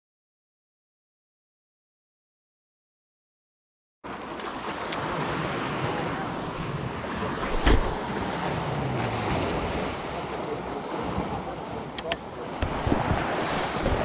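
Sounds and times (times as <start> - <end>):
sea water washing against rocks: 4.1 - 14.0
wind buffeting microphone: 12.6 - 14.0.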